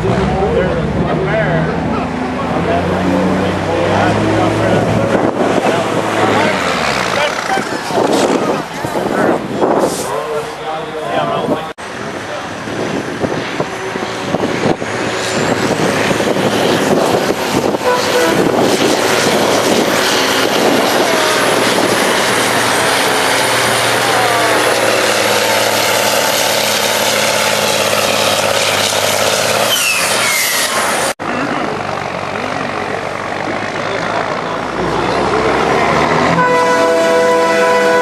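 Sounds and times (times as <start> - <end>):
truck diesel engine revving: 0.0 - 10.4, 11.8 - 38.0
faint high whistle: 29.7 - 30.8.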